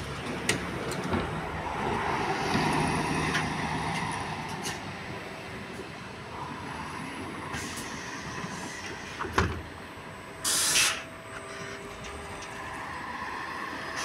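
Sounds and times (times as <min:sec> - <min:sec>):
compressed air hiss: 0:10.4 - 0:11.1.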